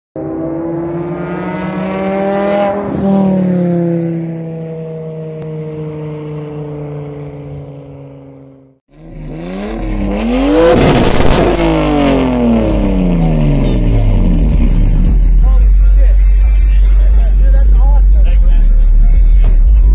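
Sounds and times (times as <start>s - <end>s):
car engine revving: 0.2s - 19.9s.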